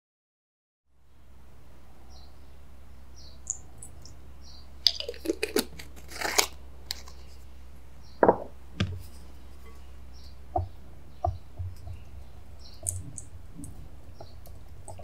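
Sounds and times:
steady low hum: 0:00.9 - 0:15.0
knocks on glass: 0:08.2 - 0:09.0.

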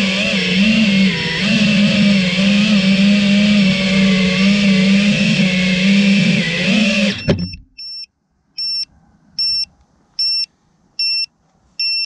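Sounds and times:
quadcopter motors running: 0:00.0 - 0:07.6
short high beeps: 0:07.2 - 0:12.0.

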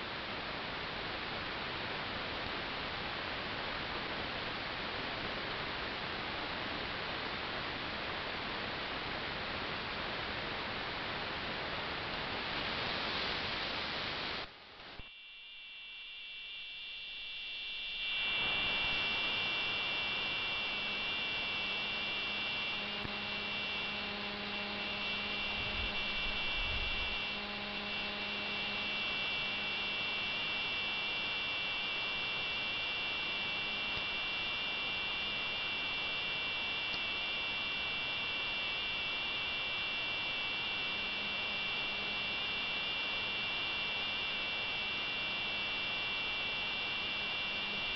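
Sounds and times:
radio hiss: 0:11.6 - 0:42.4.

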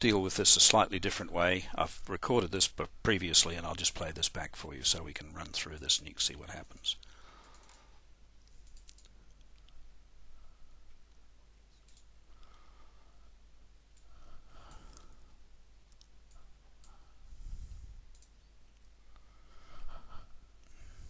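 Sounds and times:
computer mouse clicks: 0:07.4 - 0:07.8, 0:08.4 - 0:09.8, 0:11.7 - 0:12.5, 0:18.1 - 0:18.9.

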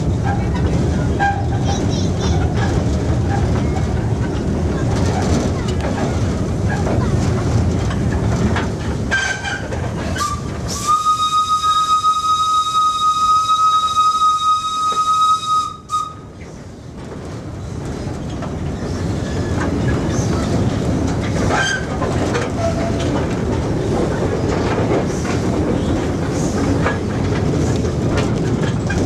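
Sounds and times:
locomotive rumble and rail clatter: 0:00.0 - 0:29.0
steam locomotive whistle: 0:10.2 - 0:16.3.

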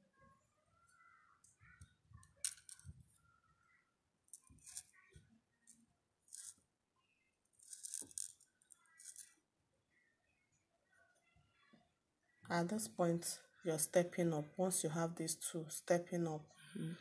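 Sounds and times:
seed beads rattling in a tray: 0:04.3 - 0:05.0, 0:06.3 - 0:06.6, 0:07.6 - 0:09.3.

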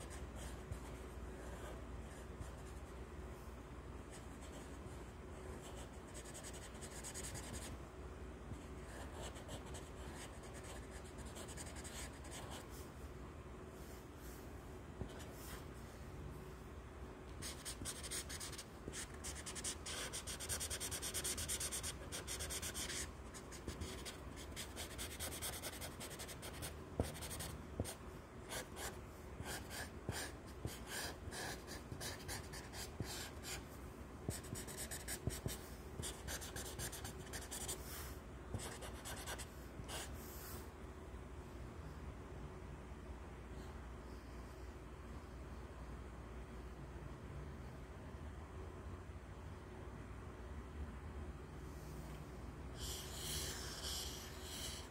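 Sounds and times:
marker scratching on paper: 0:05.6 - 0:07.7, 0:08.8 - 0:12.7, 0:17.4 - 0:33.6, 0:34.3 - 0:37.9, 0:38.5 - 0:40.1, 0:52.8 - 0:54.9.

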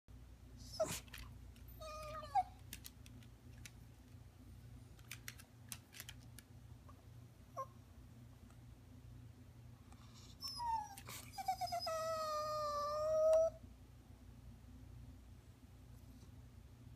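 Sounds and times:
dog whining: 0:00.6 - 0:02.6, 0:10.2 - 0:13.6
dog claws clicking on wooden floor: 0:05.0 - 0:06.5.

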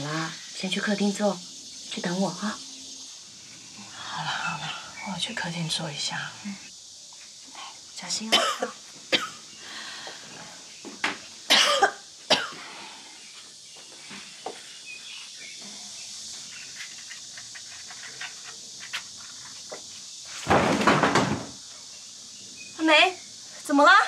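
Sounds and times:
woman coughing: 0:08.3 - 0:09.4, 0:11.5 - 0:12.6.

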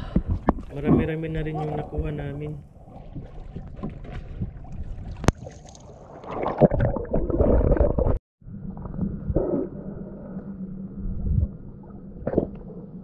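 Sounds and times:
muffled underwater sound: 0:00.0 - 0:05.3
water splashing and sloshing: 0:00.0 - 0:08.2.

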